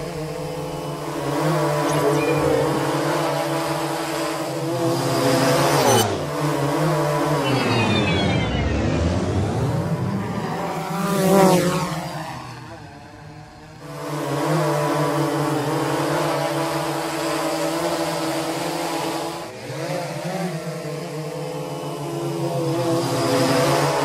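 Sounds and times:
drone rotors whining: 0.0s - 19.7s.

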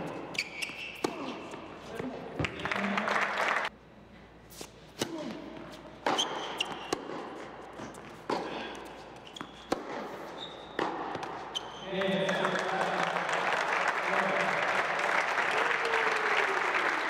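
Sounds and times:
tennis ball bouncing and struck: 6.0s - 11.7s.

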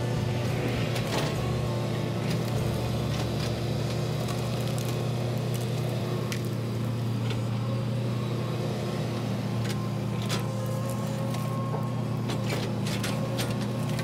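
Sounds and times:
excavator diesel engine running: 0.0s - 14.0s.

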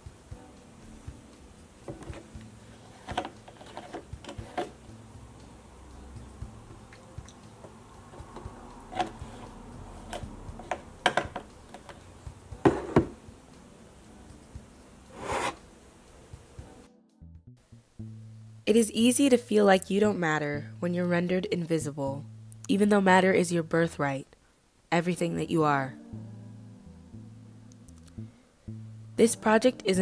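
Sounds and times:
knocks and clicks on tabletop: 10.6s - 12.0s, 12.6s - 13.2s.

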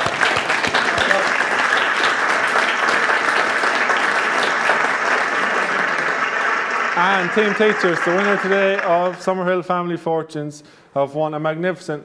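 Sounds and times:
separate hand claps: 0.0s - 9.1s
audience applause: 0.0s - 9.5s.

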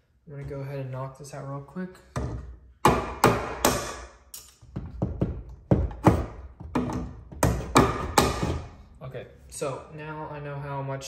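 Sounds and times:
hammer knocking plastic box: 4.8s - 8.7s.

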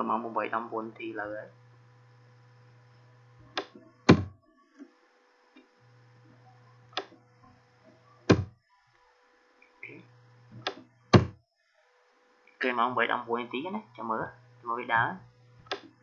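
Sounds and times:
low electrical hum: 0.0s - 16.0s
computer mouse clicks: 15.7s - 15.9s.

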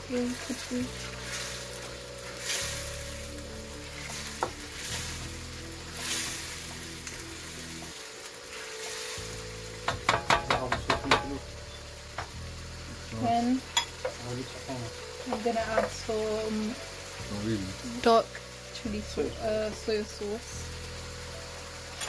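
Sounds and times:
sauce sizzling in a wok: 0.0s - 22.0s
spatula stirring sauce: 1.0s - 7.2s
spatula knocking on wok: 9.8s - 11.4s.

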